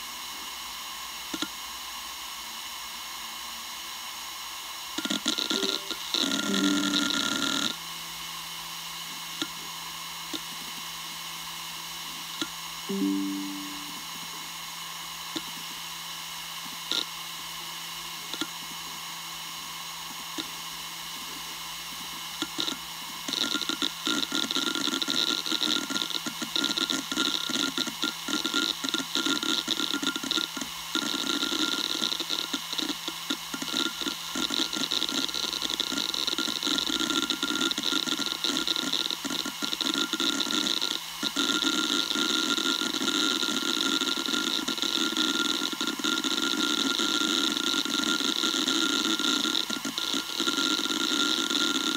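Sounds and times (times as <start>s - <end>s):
hard drive spinning hum: 5.0s - 7.9s.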